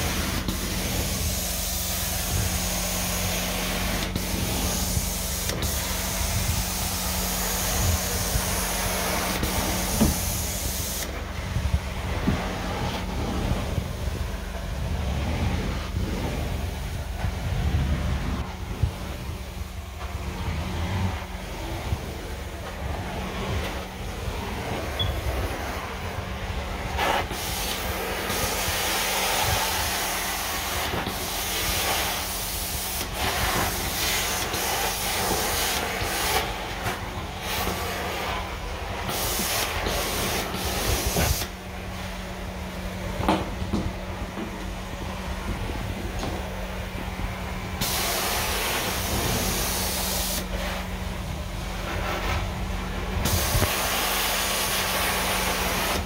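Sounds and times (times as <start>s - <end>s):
carpet extraction wand hissing: 0.0s - 11.2s, 27.0s - 38.3s, 39.0s - 41.6s, 47.8s - 50.5s.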